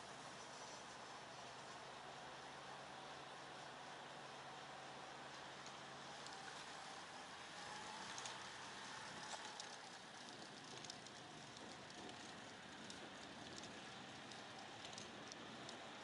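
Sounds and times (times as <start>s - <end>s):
faint steady hiss: 0.0s - 16.0s
small crackles and clicks: 5.2s - 16.0s.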